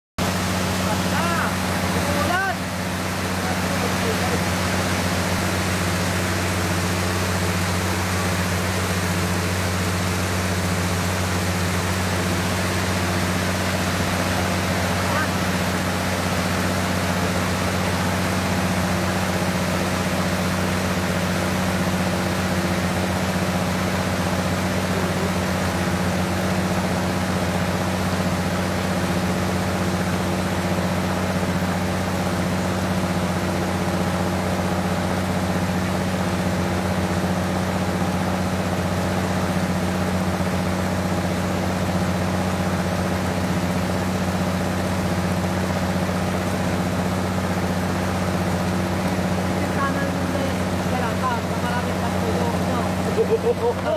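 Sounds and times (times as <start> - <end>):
boat engine droning: 0.2 - 53.9.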